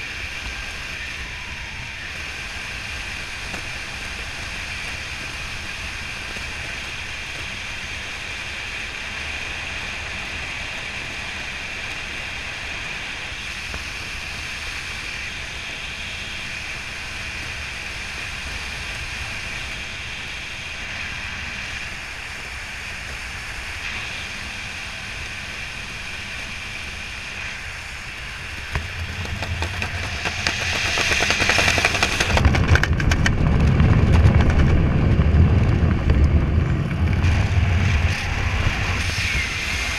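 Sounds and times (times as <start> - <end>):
wind rushing past microphone: 16.4 - 39.9.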